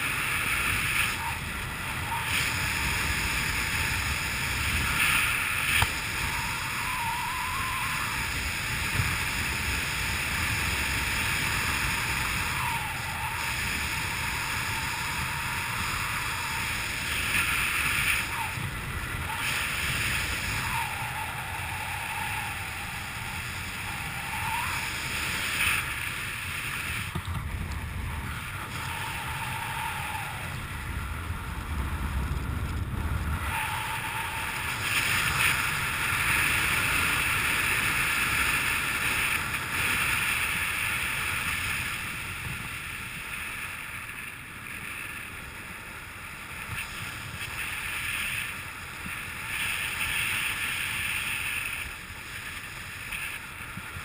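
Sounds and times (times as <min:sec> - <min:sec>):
wind rushing over microphone: 0:00.0 - 0:54.0
faint whistles: 0:06.2 - 0:08.2, 0:23.8 - 0:24.9.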